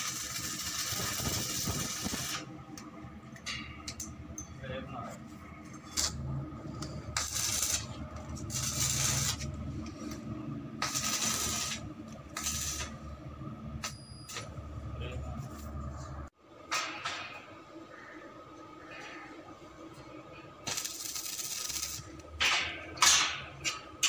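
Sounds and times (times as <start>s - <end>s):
low hum: 0.0s - 16.3s.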